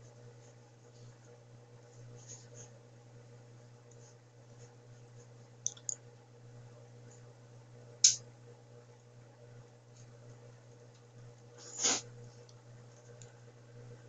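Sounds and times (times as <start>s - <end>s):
steady low hum: 0.0s - 14.0s
sharp click: 8.0s - 8.2s.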